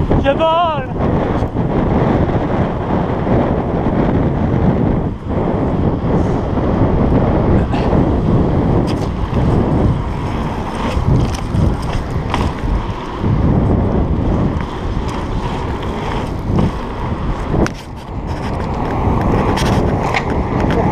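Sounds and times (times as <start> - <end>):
wind buffeting microphone: 0.0 - 20.9
tyre rumble on road: 1.0 - 20.9
bike clicks and rattles: 6.0 - 20.9.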